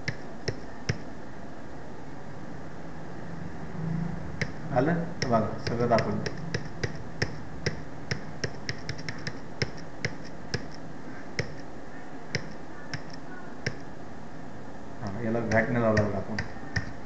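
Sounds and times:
faint low steady hum: 0:00.0 - 0:17.0
computer keyboard keys clicking: 0:05.2 - 0:10.8, 0:12.3 - 0:13.8.

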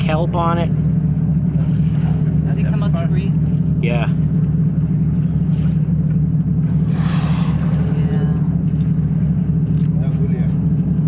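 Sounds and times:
boat engine humming: 0:00.0 - 0:11.0
brief rushing hiss: 0:06.9 - 0:08.0.

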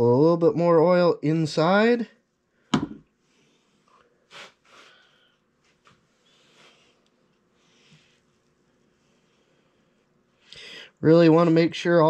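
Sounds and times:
sharp knock: 0:02.7 - 0:03.0
soft breaths or sniffs: 0:03.2 - 0:11.0.

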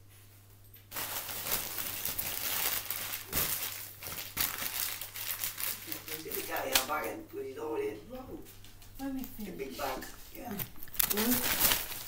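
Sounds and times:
gift packaging crumpling: 0:00.9 - 0:07.1, 0:10.3 - 0:12.0.

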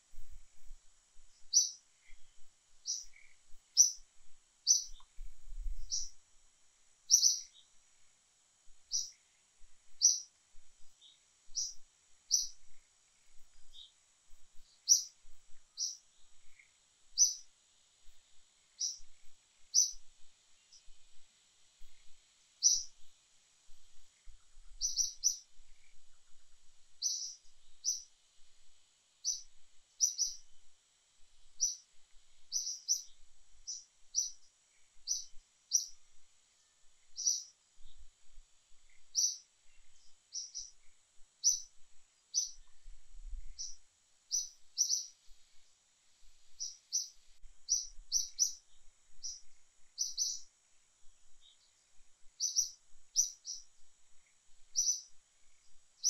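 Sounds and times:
faint high-pitched hiss: 0:00.0 - 0:56.0
bird chirping: 0:01.4 - 0:06.2, 0:07.1 - 0:07.8, 0:08.9 - 0:09.3, 0:09.9 - 0:17.5, 0:18.7 - 0:21.0, 0:21.8 - 0:23.1, 0:23.9 - 0:28.1, 0:29.2 - 0:30.6, 0:31.5 - 0:36.0, 0:36.6 - 0:38.0, 0:38.9 - 0:41.7, 0:42.3 - 0:45.6, 0:46.4 - 0:50.5, 0:51.3 - 0:55.8.

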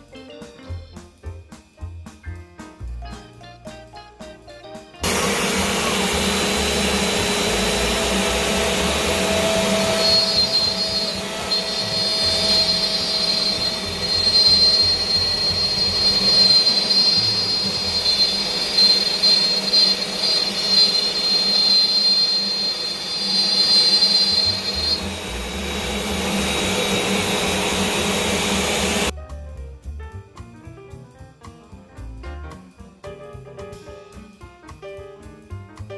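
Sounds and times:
router spindle cutting wood: 0:05.0 - 0:29.1
steady high whine: 0:05.0 - 0:29.1.

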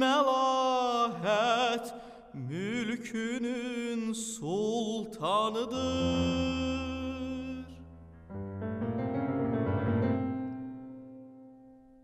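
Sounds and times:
man singing operatically: 0:00.0 - 0:07.9
piano chord: 0:05.8 - 0:12.0.

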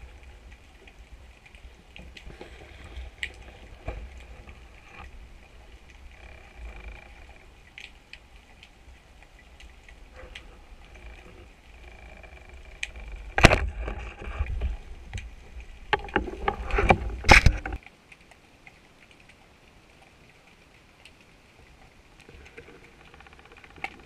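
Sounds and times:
low underwater rumble: 0:00.0 - 0:17.8.

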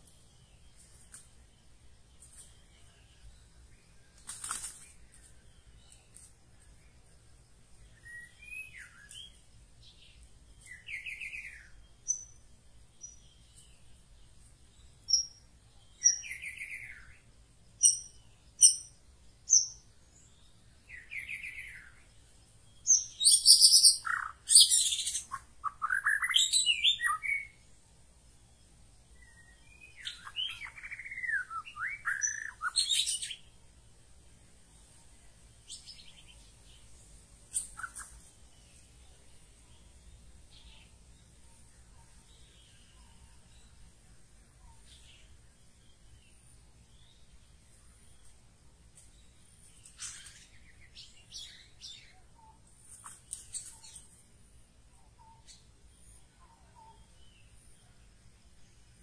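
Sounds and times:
bird singing whistles and trills: 0:07.8 - 0:12.4, 0:14.8 - 0:22.1, 0:22.8 - 0:27.7, 0:29.1 - 0:33.5, 0:49.8 - 0:52.6, 0:55.0 - 0:57.5.

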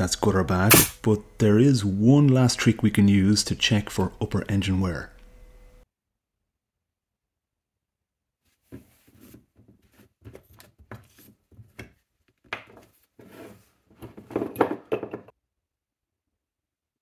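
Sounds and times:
clatter on workbench: 0:13.9 - 0:15.3.

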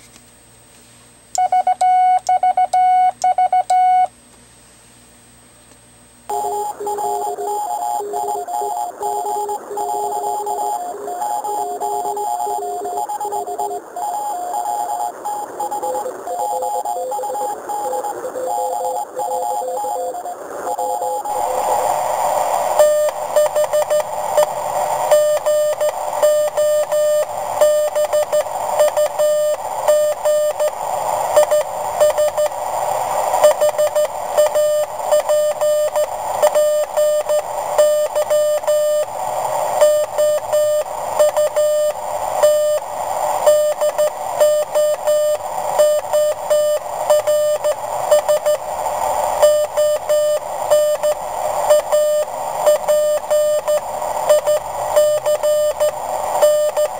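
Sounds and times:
morse code beeps: 0:01.4 - 0:04.1, 0:06.3 - 0:21.4, 0:22.8 - 0:24.5, 0:25.1 - 0:30.7, 0:31.4 - 0:32.5, 0:33.4 - 0:39.1, 0:39.8 - 0:42.8, 0:43.4 - 0:48.6, 0:49.4 - 0:56.9.

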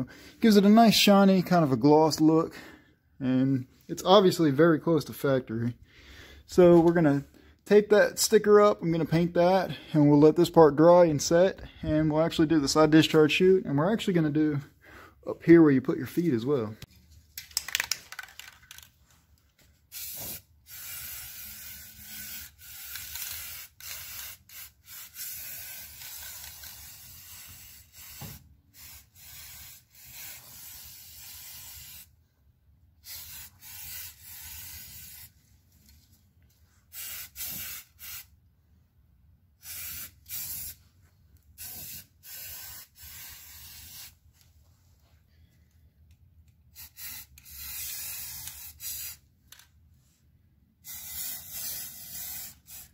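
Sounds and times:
spray paint can hissing: 0:19.9 - 0:32.1, 0:33.0 - 0:35.3, 0:36.9 - 0:38.3, 0:39.6 - 0:40.8, 0:41.6 - 0:44.2, 0:46.7 - 0:49.2, 0:50.8 - 0:52.9.

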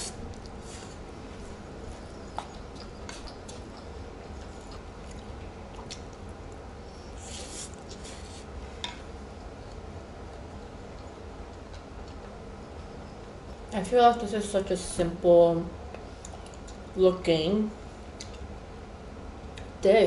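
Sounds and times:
person chewing food: 0:00.0 - 0:08.5, 0:09.7 - 0:12.4.

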